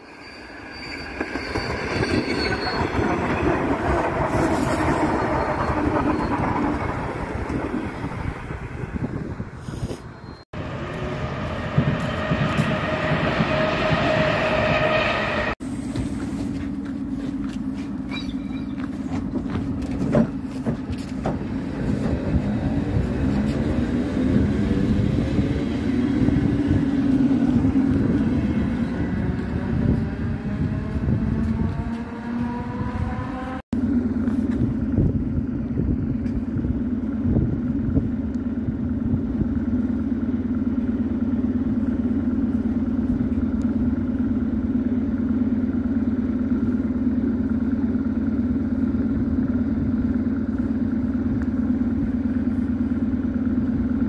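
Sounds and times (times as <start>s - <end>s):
steady drone of train equipment: 0.0s - 54.0s
train traction motors whining: 10.6s - 19.9s.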